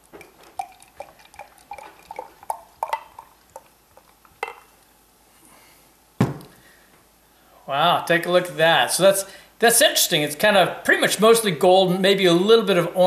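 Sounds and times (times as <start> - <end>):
beer pouring into glass: 0.1 - 4.8
bottle knocking down: 6.2 - 6.5.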